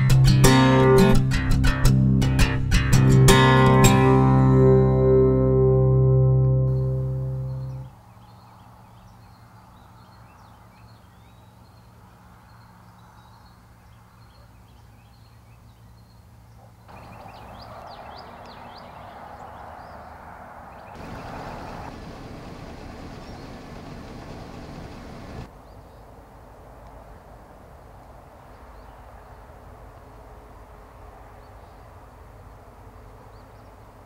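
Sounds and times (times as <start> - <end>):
low hum: 3.9 - 7.9, 21.0 - 25.5
small birds chirping: 6.7 - 26.2, 31.1 - 34.0.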